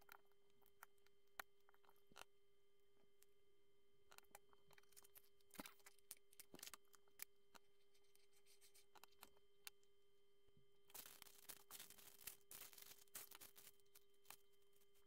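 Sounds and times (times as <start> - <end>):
faint steady hum: 0.0 - 15.0
rubbing and handling noise: 7.6 - 9.4, 10.9 - 15.0.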